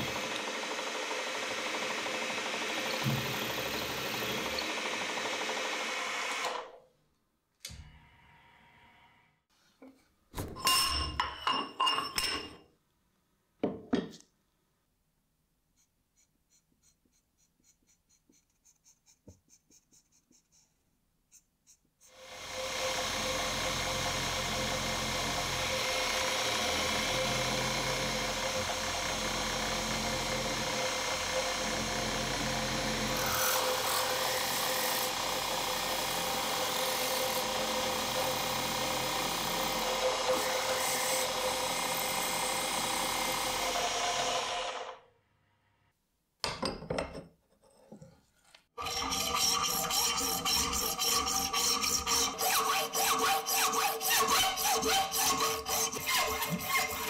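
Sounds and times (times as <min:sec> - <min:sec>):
milling machine cutting metal: 0:22.2 - 0:44.9, 0:48.8 - 0:57.0
hacksaw cutting metal: 0:30.2 - 0:44.9, 0:48.8 - 0:57.0.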